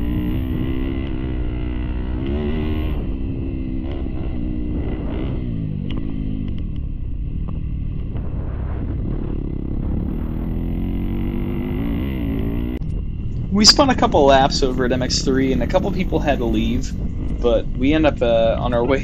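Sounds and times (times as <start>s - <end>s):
dirt bike engine revving: 0.0s - 19.0s.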